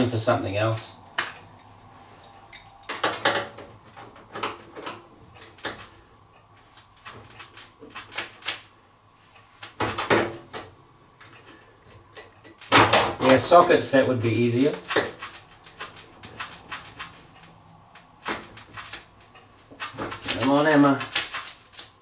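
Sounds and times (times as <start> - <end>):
wrench clinking on metal: 2.5 - 3.1.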